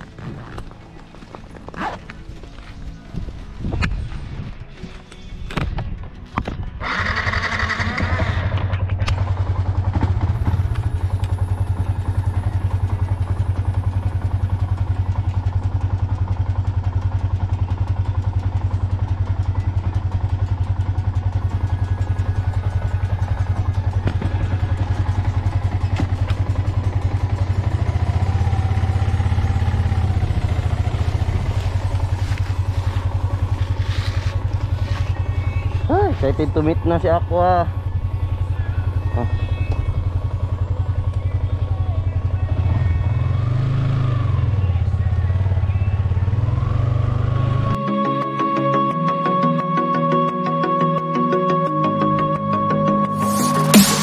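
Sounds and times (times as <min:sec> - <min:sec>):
motorcycle engine starting and idling: 0:05.2 - 0:47.8.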